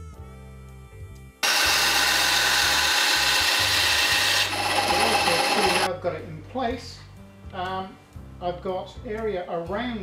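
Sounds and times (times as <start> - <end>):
bandsaw cutting wood: 1.4 - 5.9.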